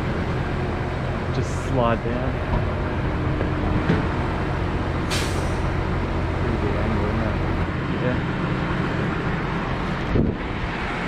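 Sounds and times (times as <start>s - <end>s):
truck engine running: 0.0s - 11.0s
short sharp hiss: 5.1s - 5.6s.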